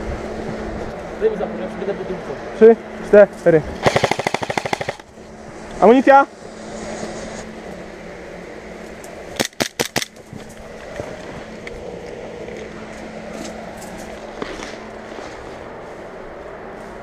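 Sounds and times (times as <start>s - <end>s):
airsoft gun shots: 3.8s - 5.0s, 9.4s - 10.1s
person walking: 10.2s - 17.0s.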